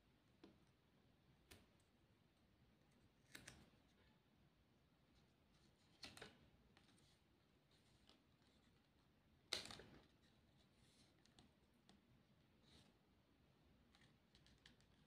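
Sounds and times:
soft papery clicks: 2.9s - 4.0s, 5.6s - 8.9s, 13.9s - 15.0s.

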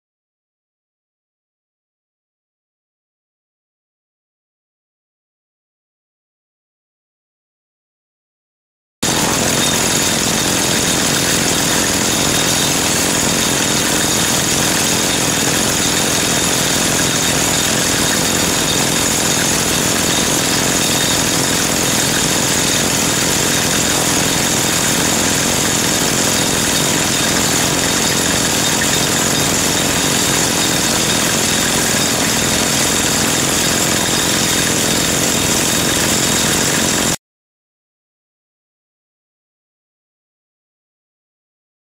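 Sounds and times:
drilling rig running: 9.0s - 37.2s.

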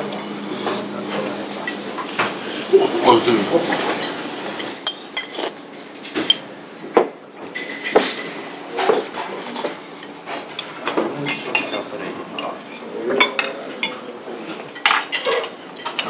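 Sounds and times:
cutlery clinking on plates: 3.8s - 16.0s.

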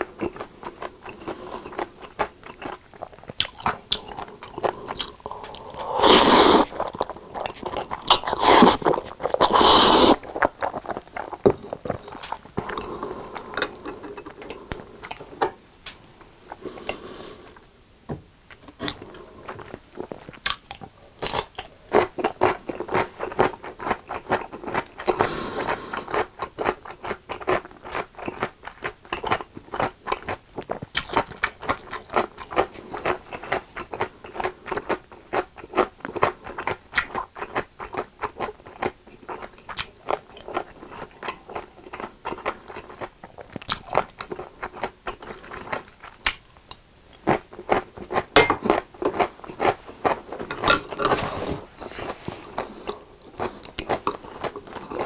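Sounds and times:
wet crunchy chewing: 0.2s - 15.2s.

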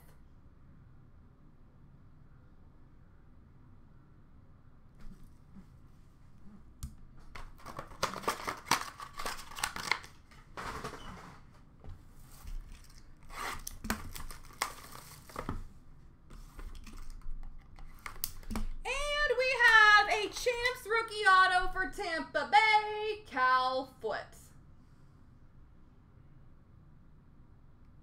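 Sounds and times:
foil wrappers crinkling and tearing: 7.4s - 10.6s, 12.6s - 15.6s.

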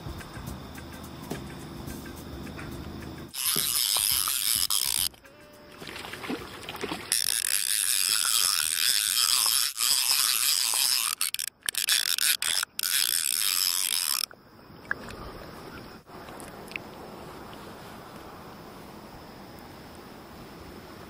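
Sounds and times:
fishing reel ratchet clicking: 3.3s - 5.3s, 7.1s - 14.3s.

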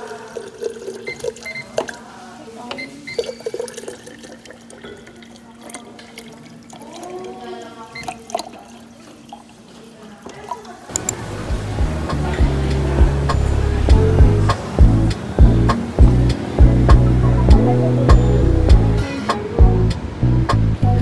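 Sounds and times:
water pouring into bottle: 3.0s - 11.2s
steady low hum: 11.0s - 19.0s.

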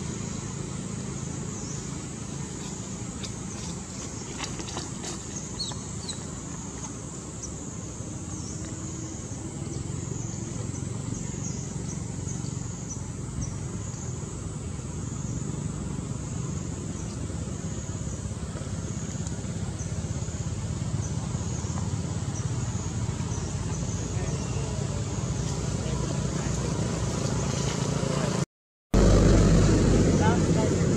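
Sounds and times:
low rumble: 29.0s - 30.9s.

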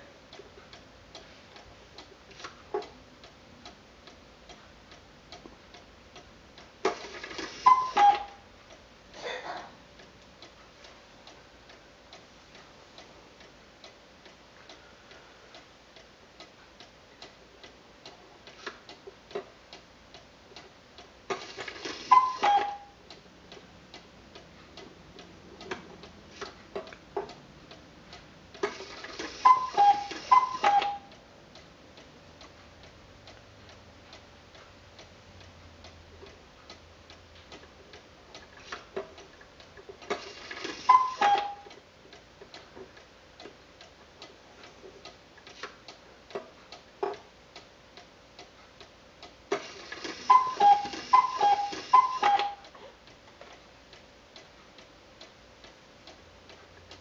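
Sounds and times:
clock ticking: 0.0s - 9.2s, 9.8s - 57.0s
two-note cuckoo call: 7.7s - 8.4s, 22.1s - 22.9s, 29.4s - 31.1s, 40.9s - 41.7s, 50.3s - 52.6s
striking mechanism whirr: 49.5s - 52.7s.

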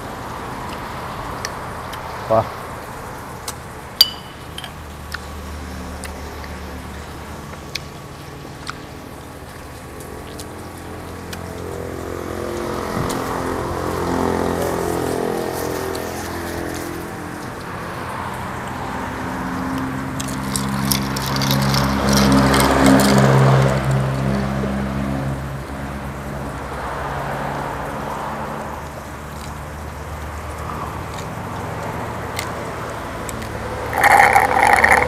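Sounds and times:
tableware clacking: 4.0s - 4.8s.

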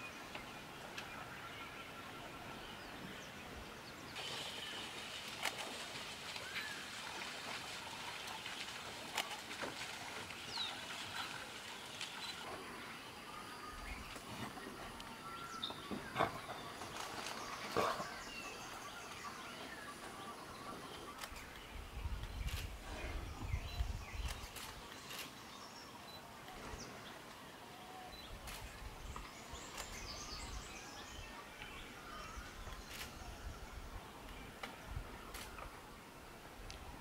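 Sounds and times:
steady background hiss: 0.0s - 37.0s.

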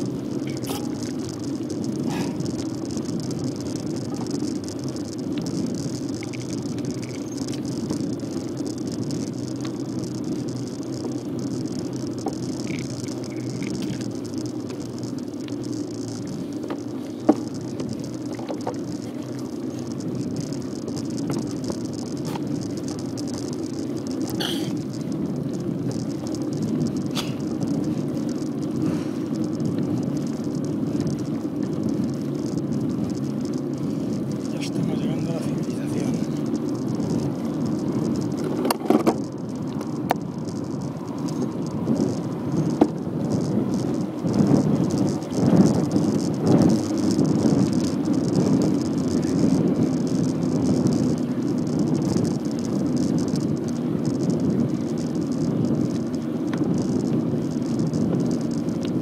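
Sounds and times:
bicycle tyres rumbling: 0.0s - 59.0s
bike rattles and clicks: 0.0s - 59.0s
wind on microphone: 0.0s - 59.0s.

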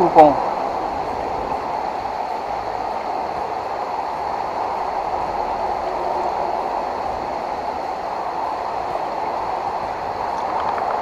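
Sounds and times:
water rushing over rocks: 6.6s - 11.0s.

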